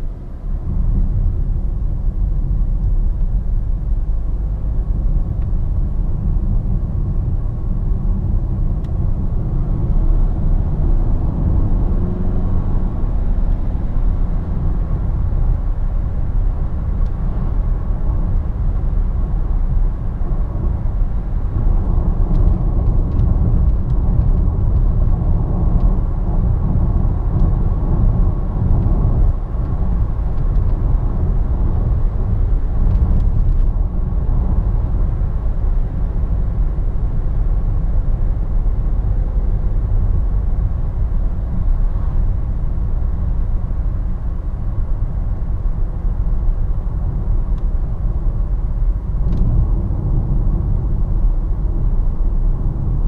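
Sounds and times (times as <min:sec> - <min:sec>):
car engine and road noise: 0:00.0 - 0:53.0.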